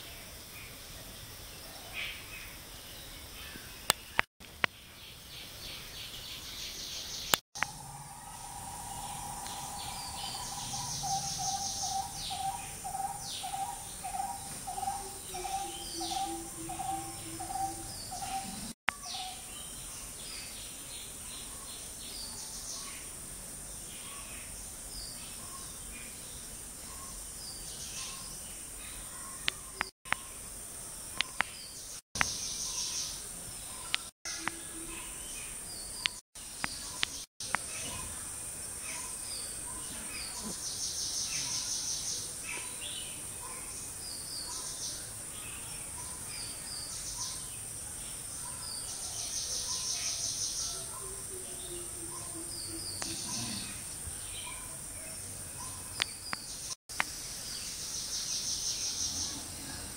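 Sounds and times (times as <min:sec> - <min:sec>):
small birds chirping: 0:01.8 - 0:23.2, 0:23.8 - 0:59.9
high insect hiss: 0:07.6 - 0:15.4.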